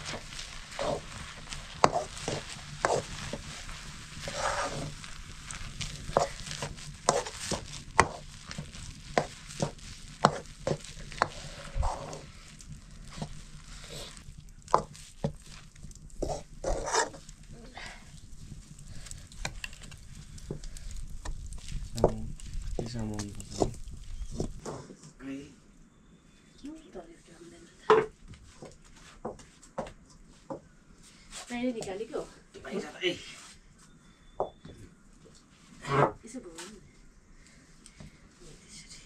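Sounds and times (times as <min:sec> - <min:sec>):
wooden stirrer scraping pot: 0:00.0 - 0:25.0.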